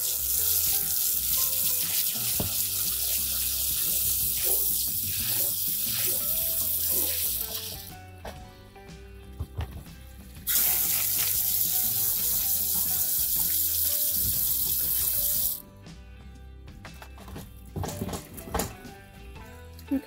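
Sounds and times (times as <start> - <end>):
hose nozzle spraying water on stones: 0.0 - 7.9, 10.5 - 15.6.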